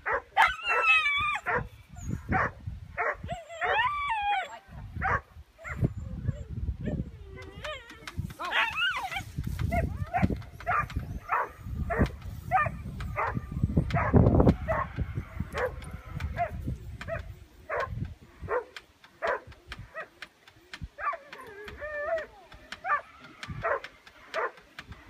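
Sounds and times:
dog yipping: 0:00.1 - 0:14.9.

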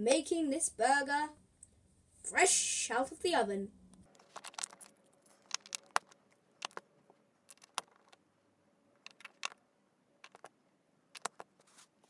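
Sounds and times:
plastic bricks clicking together: 0:04.1 - 0:06.8, 0:07.5 - 0:08.2, 0:09.0 - 0:09.6, 0:10.2 - 0:10.5, 0:11.2 - 0:11.5.

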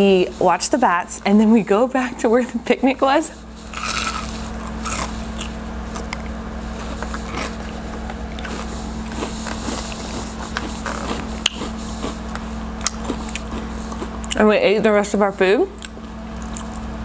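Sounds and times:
steady low hum: 0:00.0 - 0:17.0
crunching fried onion ring: 0:03.6 - 0:14.4.

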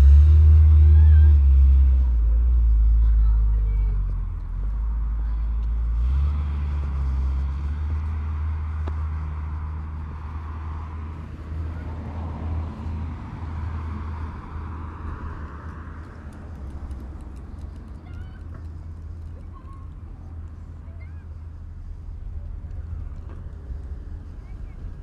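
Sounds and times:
road noise: 0:00.0 - 0:25.0
vehicle engine rumble: 0:00.0 - 0:25.0.

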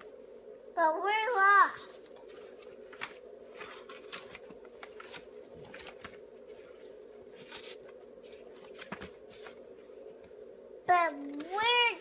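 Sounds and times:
faint steady hum: 0:00.0 - 0:12.0
paper pages rustling: 0:01.8 - 0:10.4, 0:11.1 - 0:12.0.

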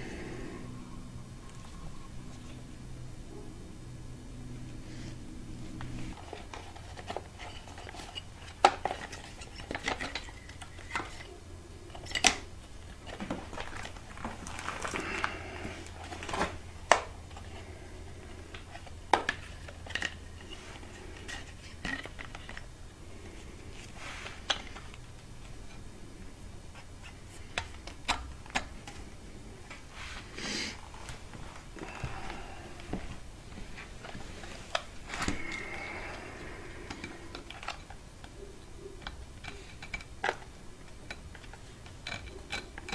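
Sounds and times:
steady low hum: 0:00.0 - 0:42.9
rustling: 0:04.8 - 0:25.9.

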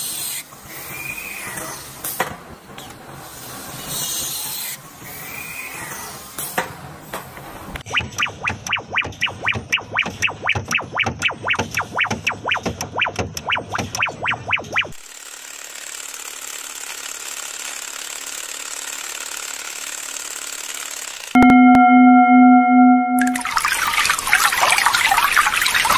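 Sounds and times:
rapid mechanical clicking: 0:07.8 - 0:21.3
loud ringing tone: 0:21.4 - 0:23.6.

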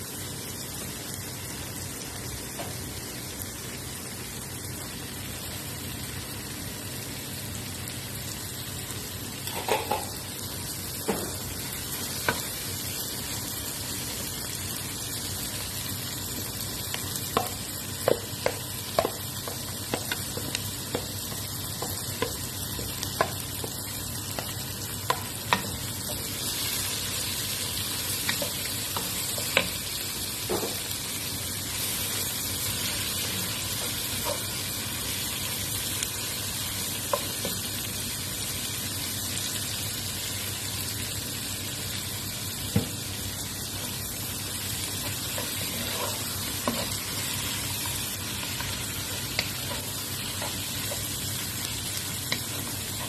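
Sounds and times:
vegetables sizzling in oil: 0:00.0 - 0:53.0
spoon tapping against pan: 0:17.3 - 0:25.8.

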